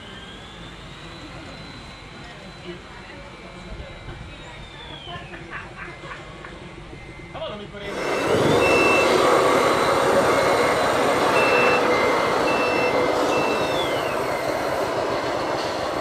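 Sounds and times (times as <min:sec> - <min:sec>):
electronic reversing beeps: 0:00.0 - 0:05.4, 0:06.8 - 0:16.0
vehicle running noise: 0:06.8 - 0:16.0.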